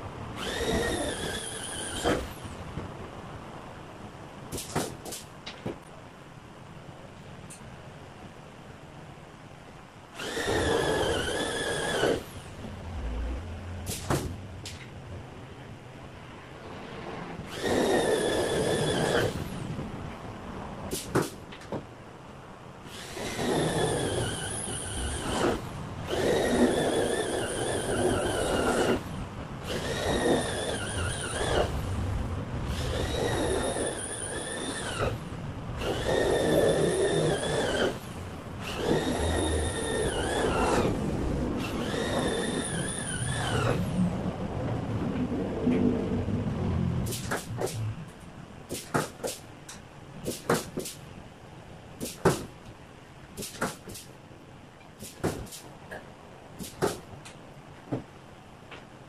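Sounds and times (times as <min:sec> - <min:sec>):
electric drill whining: 0:00.4 - 0:02.3, 0:10.2 - 0:12.3, 0:35.8 - 0:41.0, 0:41.6 - 0:43.8.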